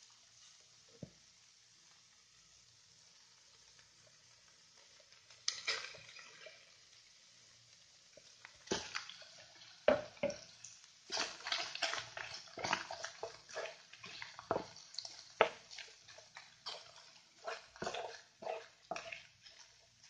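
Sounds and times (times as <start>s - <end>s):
wooden spatula scraping frying pan: 11.1s - 20.0s.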